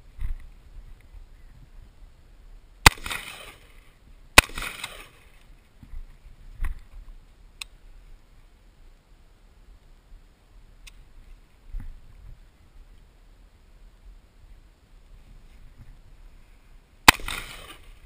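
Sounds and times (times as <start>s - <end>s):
rifle shots with echo: 2.8s - 3.8s, 4.4s - 5.3s, 17.0s - 18.0s.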